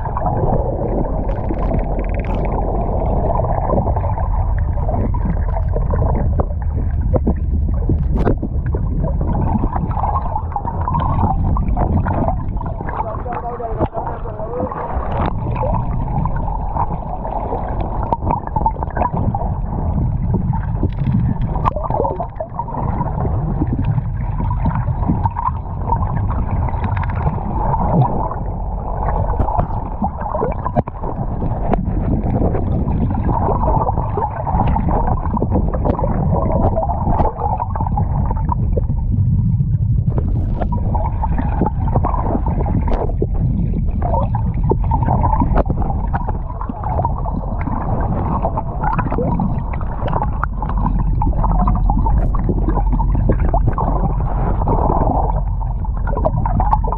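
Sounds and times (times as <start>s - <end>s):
small knocks underwater: 0.0s - 28.4s, 29.0s - 56.9s
underwater low rumble: 0.0s - 56.9s
water gurgling: 0.0s - 56.9s.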